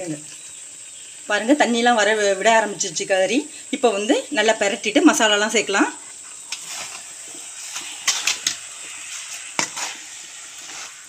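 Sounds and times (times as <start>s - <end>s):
chicken sizzling in a pan: 0.0s - 11.0s
metal ladle scraping a pan: 6.4s - 11.0s.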